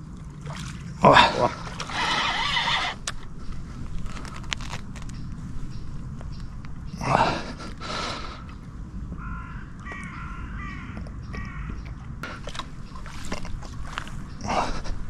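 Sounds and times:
steady low rumble: 0.0s - 15.0s
crow cawing: 1.9s - 3.0s, 9.2s - 11.8s.

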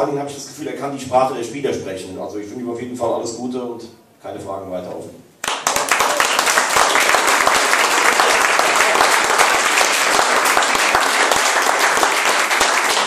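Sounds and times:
audience applause: 5.4s - 13.0s.

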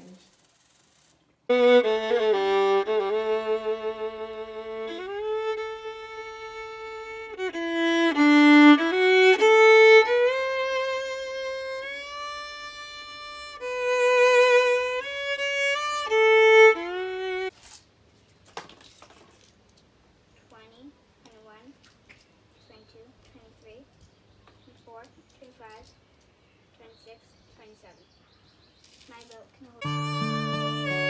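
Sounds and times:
solo violin melody: 1.5s - 17.5s, 29.8s - 31.0s.

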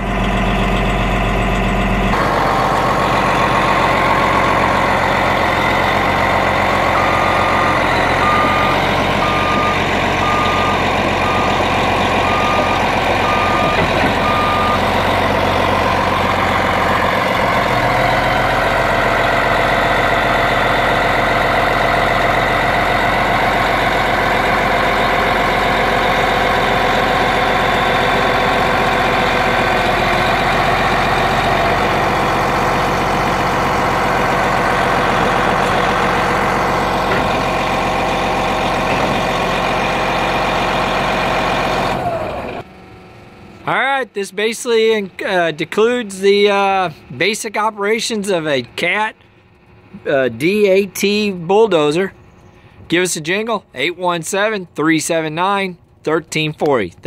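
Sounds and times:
diesel engine running: 0.0s - 54.8s
backup alarm beeping: 6.9s - 15.0s.

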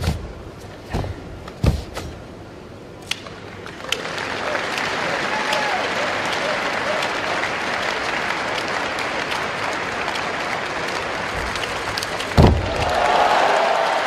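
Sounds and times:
arena crowd noise: 2.5s - 14.0s
heavy thud on mat: 12.4s - 12.9s.

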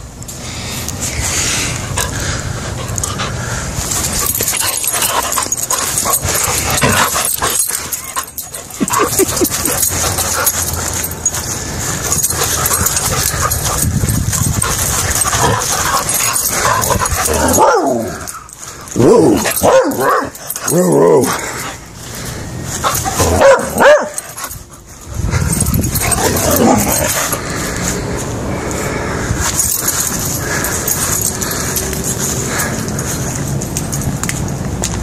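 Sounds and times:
dog whining and yipping: 4.2s - 21.4s.

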